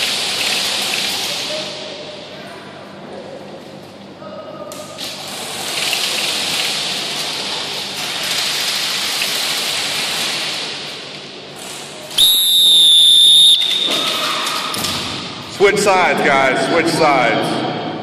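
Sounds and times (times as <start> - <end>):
referee's whistle blast: 12.2 - 14.1.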